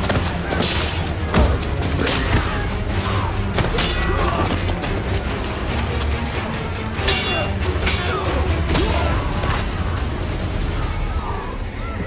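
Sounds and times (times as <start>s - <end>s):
weapons clashing: 0.0s - 5.6s, 6.9s - 10.1s.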